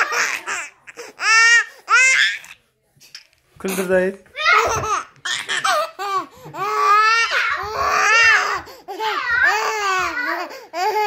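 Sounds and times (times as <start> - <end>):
baby squealing and laughing: 0.0 - 2.6.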